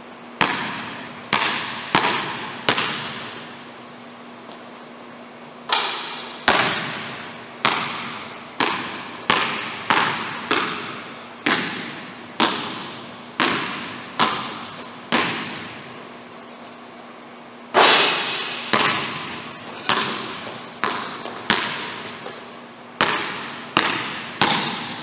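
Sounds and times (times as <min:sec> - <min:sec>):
basketball bouncing on hardwood floor: 0:00.4 - 0:03.5, 0:05.7 - 0:15.9, 0:18.2 - 0:25.0.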